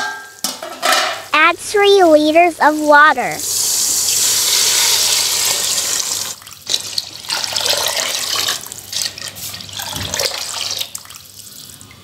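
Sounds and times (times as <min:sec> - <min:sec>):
water pouring into a pot: 0:03.4 - 0:12.0.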